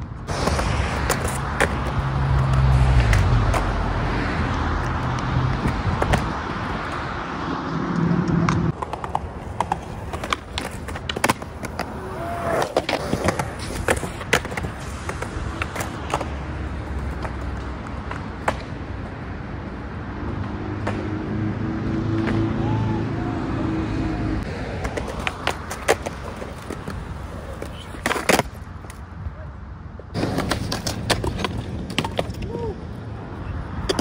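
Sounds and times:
skateboard wheels rolling on concrete: 0.0s - 34.0s
car passing: 0.2s - 28.9s
skateboard clacking on pavement: 5.1s - 7.0s, 8.2s - 19.2s, 24.7s - 29.0s, 30.1s - 32.7s.

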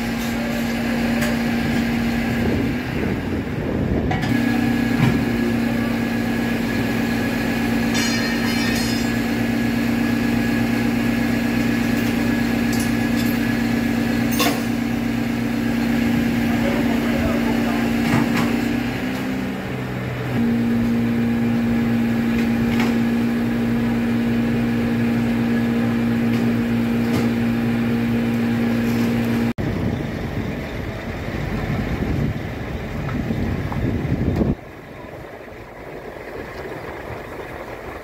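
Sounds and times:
low engine rumble: 0.0s - 38.0s.

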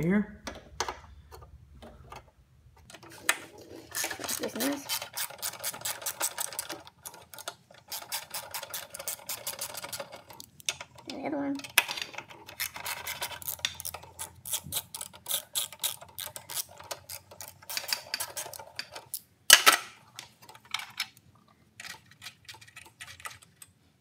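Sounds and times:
socket ratchet clicking: 4.0s - 11.0s, 12.5s - 19.2s.

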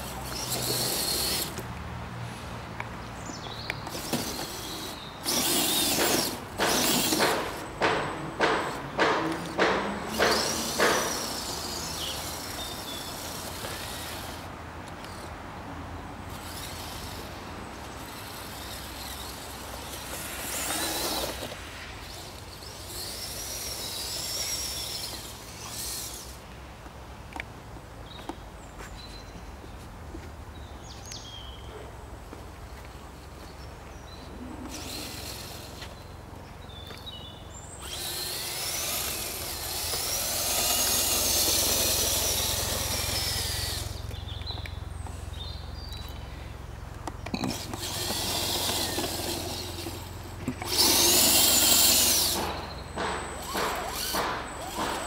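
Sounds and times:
electric motor whining in bursts: 0.0s - 1.7s, 3.8s - 15.2s, 16.3s - 26.4s, 34.4s - 36.0s, 37.6s - 44.3s, 47.3s - 55.0s.

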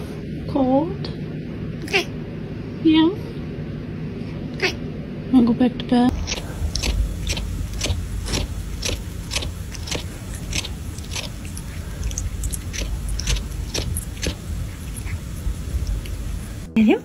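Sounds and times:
low steady rumble: 4.9s - 17.0s
cat sucking and chewing: 6.1s - 16.7s.

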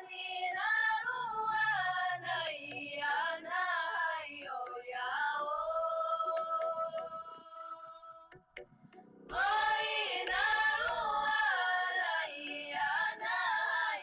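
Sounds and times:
woman singing: 0.0s - 8.4s, 9.4s - 14.0s.

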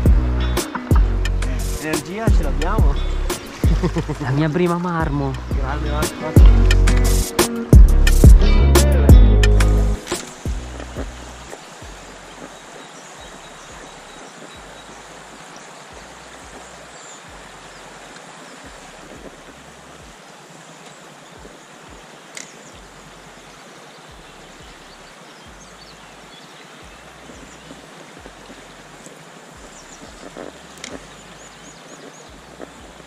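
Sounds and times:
river water flowing: 0.0s - 33.0s
sharp click: 10.0s - 10.4s.

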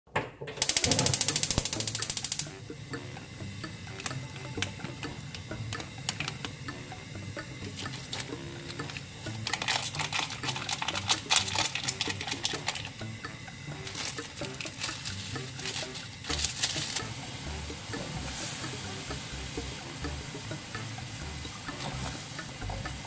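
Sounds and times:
gas stove igniter clicking: 0.5s - 13.1s
foil sachet crinkling: 7.7s - 13.0s, 13.8s - 17.2s.

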